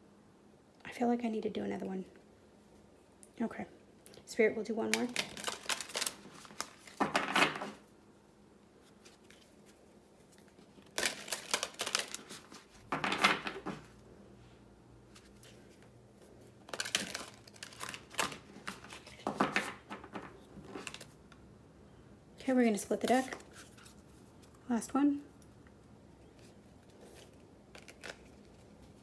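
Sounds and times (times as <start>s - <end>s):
cards being shuffled: 4.9s - 7.8s, 8.8s - 14.0s, 15.1s - 21.2s, 23.0s - 24.1s, 26.4s - 29.0s.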